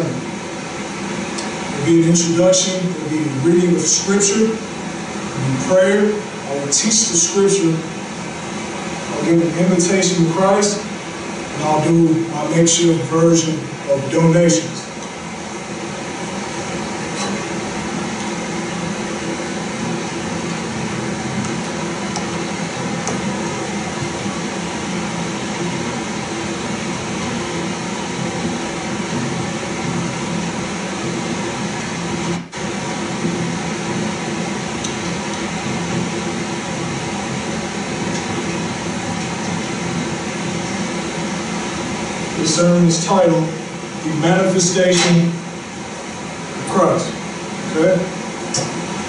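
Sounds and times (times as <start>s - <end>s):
room noise hum and hiss: 0.0s - 49.0s.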